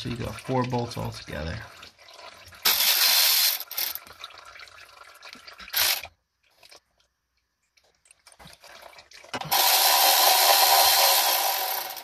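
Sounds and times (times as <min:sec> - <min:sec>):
cordless ratchet spinning: 0:09.5 - 0:12.0.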